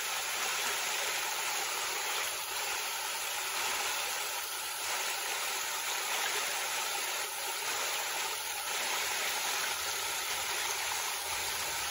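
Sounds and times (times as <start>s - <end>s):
creek water running over rocks: 0.0s - 11.9s.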